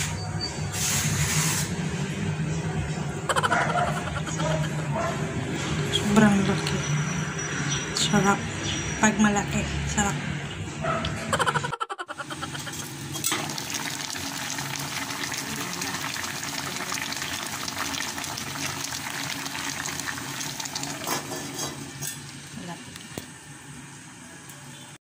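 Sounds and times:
water boiling in a pot: 12.2s - 23.4s.

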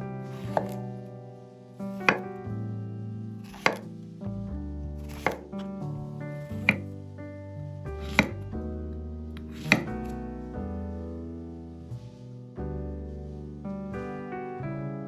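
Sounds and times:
piano music: 0.0s - 15.0s
knife chopping on wooden board: 0.3s - 0.8s, 2.0s - 2.3s, 3.4s - 3.9s, 5.0s - 5.6s, 6.5s - 7.0s, 8.0s - 8.4s, 9.4s - 10.1s.

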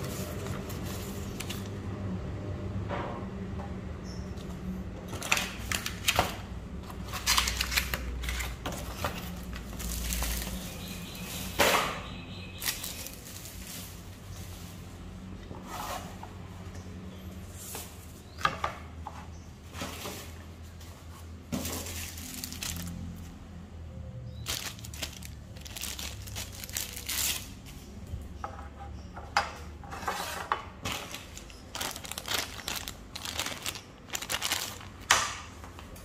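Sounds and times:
packaging handled on a table: 24.4s - 27.5s, 30.0s - 36.0s.

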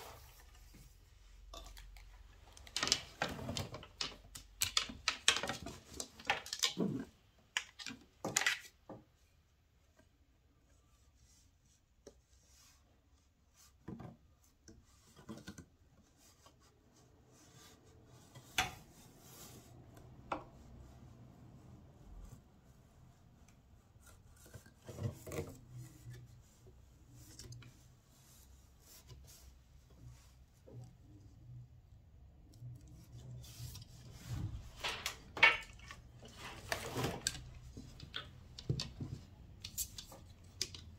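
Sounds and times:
wooden clicks and knocks: 1.5s - 9.0s, 34.8s - 40.9s.

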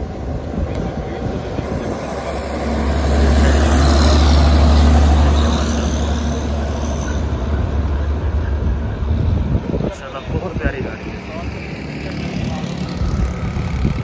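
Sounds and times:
diesel truck engine passing: 0.0s - 14.0s.

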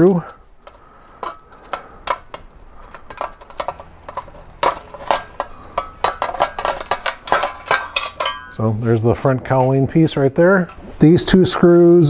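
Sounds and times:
plastic cowling clicks and rattles: 0.6s - 8.4s.

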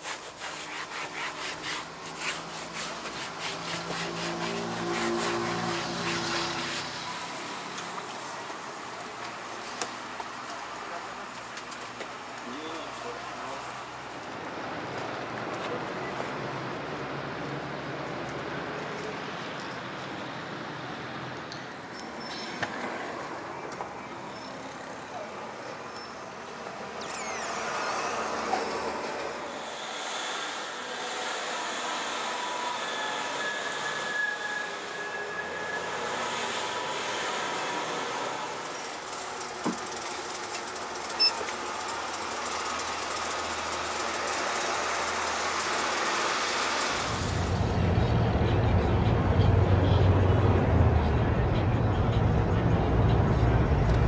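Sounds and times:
traffic hiss and rumble: 0.0s - 54.0s
vehicle rushing noise: 41.6s - 54.0s
low rumble: 47.0s - 54.0s.

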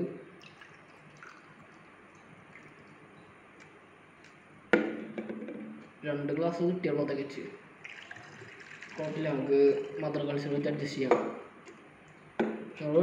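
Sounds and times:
sharp knock: 4.7s - 5.8s.

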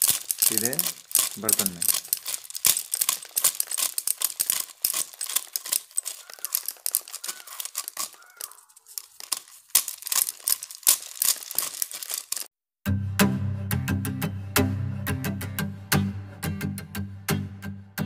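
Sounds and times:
kernels pattering into basket: 0.0s - 12.5s
maize kernels crackling off cob: 0.0s - 12.6s.

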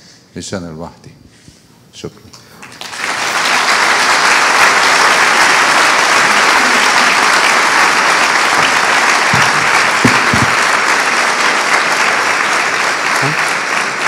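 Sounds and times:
audience applauding: 2.6s - 14.0s
low thumps: 7.8s - 11.2s.

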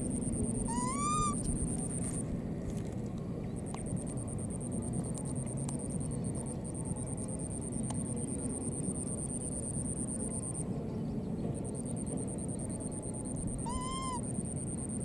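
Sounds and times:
outdoor background hiss: 0.0s - 15.0s
baby monkey squealing: 0.7s - 1.5s, 13.6s - 14.2s.

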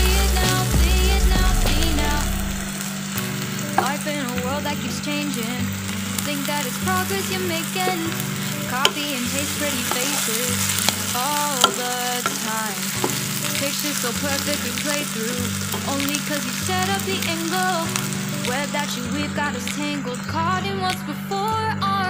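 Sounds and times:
food sizzling in oil: 0.0s - 20.4s.

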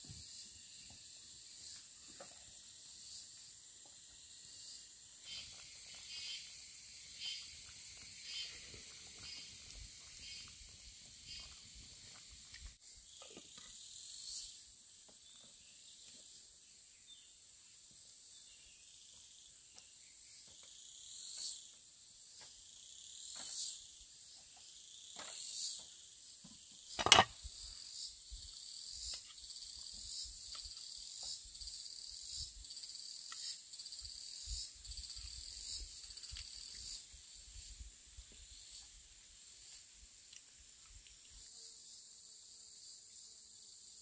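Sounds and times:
insects calling high-pitched: 2.6s - 14.8s, 26.9s - 40.5s.

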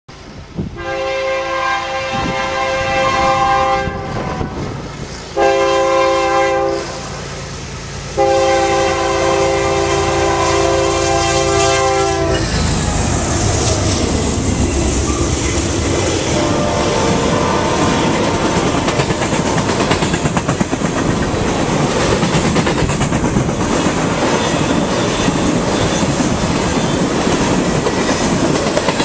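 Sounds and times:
locomotive air horn blasts: 0.8s - 4.7s, 5.4s - 7.2s, 8.1s - 14.0s, 16.2s - 18.7s
locomotive engine rumbling: 2.2s - 28.9s
freight cars rattling past: 6.8s - 29.0s.

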